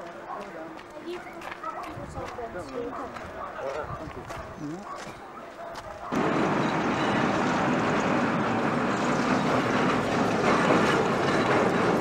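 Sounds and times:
train wheels rumbling on rails: 0:06.2 - 0:12.0.

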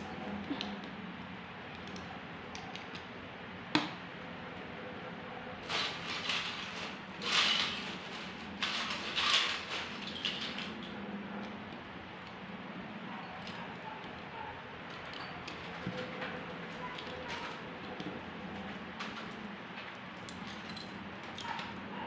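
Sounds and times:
plastic bricks scraping and rustling: 0:05.6 - 0:10.9.

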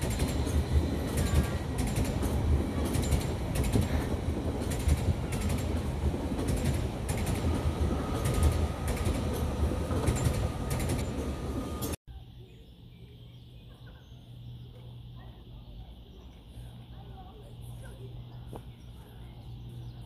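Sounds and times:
train wheels clicking on track: 0:00.0 - 0:12.0
diesel locomotive engine rumbling: 0:00.0 - 0:20.0.

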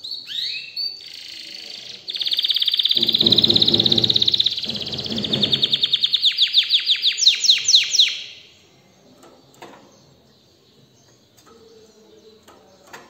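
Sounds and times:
canary singing: 0:00.0 - 0:13.0
faint knock: 0:03.0 - 0:05.9.

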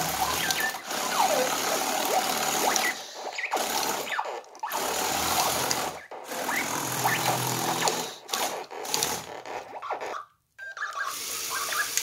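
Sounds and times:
toy motors whirring: 0:00.0 - 0:12.0.

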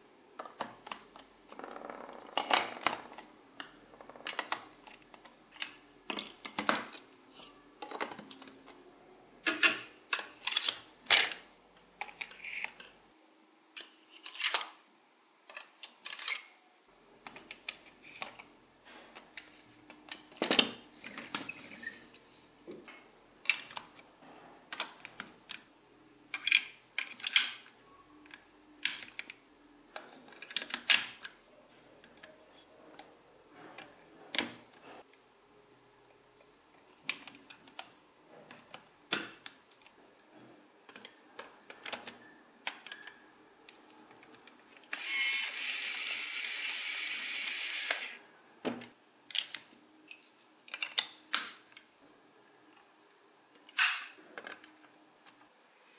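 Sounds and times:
plastic toy bricks clicking: 0:12.0 - 0:13.0, 0:26.3 - 0:31.4, 0:49.3 - 0:51.9.

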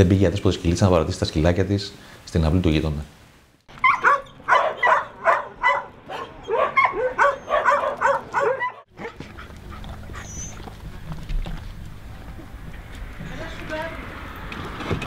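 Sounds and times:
dog barking and yipping: 0:03.7 - 0:10.7.

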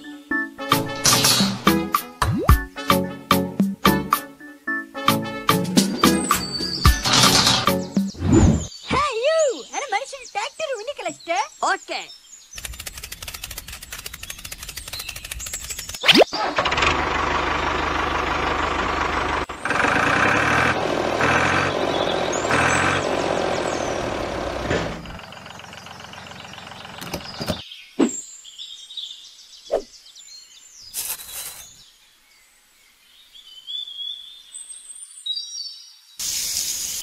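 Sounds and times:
birds chirping: 0:05.6 - 0:16.5, 0:21.1 - 0:37.0
pulsing engine: 0:12.7 - 0:27.6.

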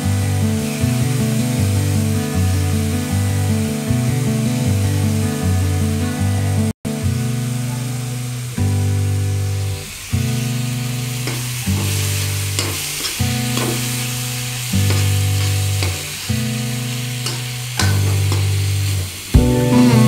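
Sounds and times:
food sizzling in pan: 0:00.0 - 0:05.5, 0:07.2 - 0:20.0
metal spoon scraping pan: 0:11.2 - 0:14.1, 0:14.8 - 0:16.1, 0:17.2 - 0:18.5
background music chords: 0:19.4 - 0:20.0.

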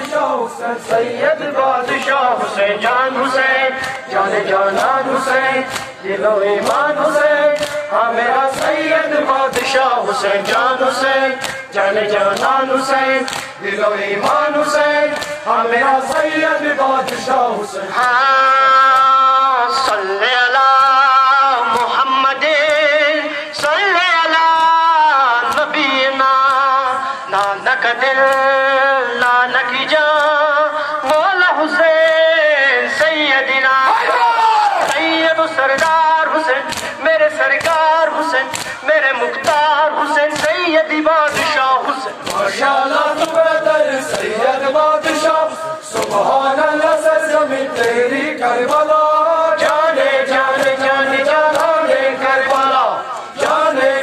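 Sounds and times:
men chanting together: 0:00.0 - 0:54.0
hands slapping chests: 0:02.8 - 0:17.4, 0:21.6 - 0:22.0, 0:25.4 - 0:26.8, 0:27.4 - 0:28.6, 0:29.2 - 0:30.4, 0:34.8 - 0:54.0.

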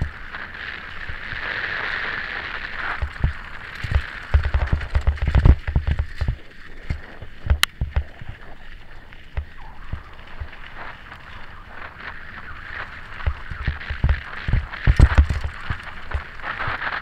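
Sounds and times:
wind rushing over microphone: 0:00.0 - 0:17.0
bike thumps and rattles: 0:02.9 - 0:08.1, 0:13.2 - 0:16.3.

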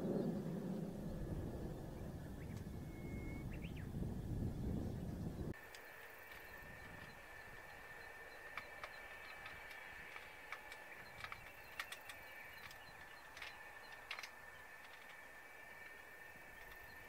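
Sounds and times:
steady high-pitched hum: 0:00.0 - 0:17.0
bird chirps: 0:01.1 - 0:17.0.

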